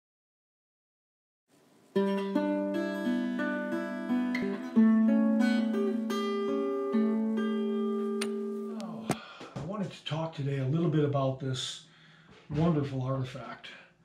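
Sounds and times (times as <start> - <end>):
acoustic guitar plucked notes: 1.9 - 9.1.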